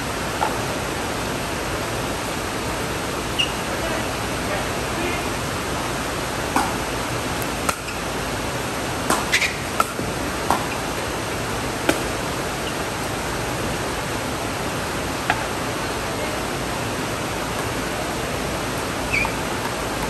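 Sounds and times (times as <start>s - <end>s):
ball bouncing on concrete: 6.5s - 6.8s, 7.7s - 8.0s, 9.1s - 10.8s
paddles hitting ball: 6.5s - 6.8s, 9.1s - 11.1s.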